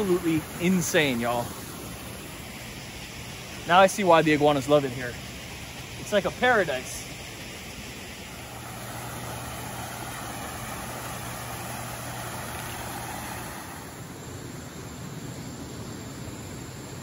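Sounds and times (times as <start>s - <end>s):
low mechanical hum: 0.0s - 17.0s
even rushing noise: 8.1s - 15.3s.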